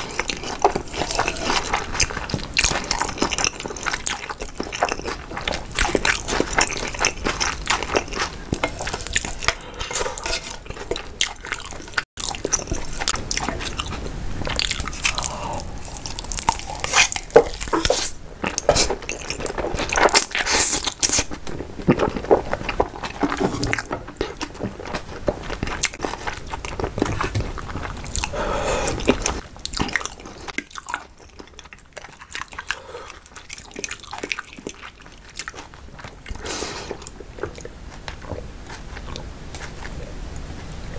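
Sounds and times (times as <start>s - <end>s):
wet chewing and smacking: 0.0s - 40.4s.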